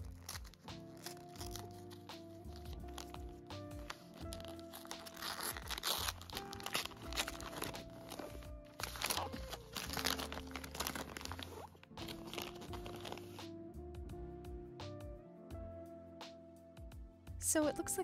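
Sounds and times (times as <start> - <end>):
paper wrapping tearing and crinkling: 0.0 - 13.4
soft background music: 0.0 - 18.0.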